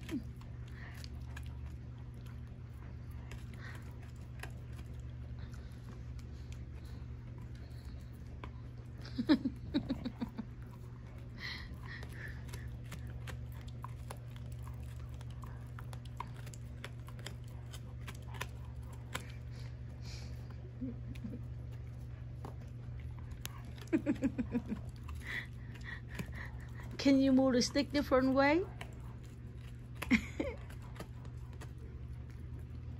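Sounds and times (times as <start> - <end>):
dog teeth scraping chew stick: 0.0 - 9.4, 10.2 - 32.9
steady low hum: 0.0 - 32.9
person's voice: 27.0 - 28.6.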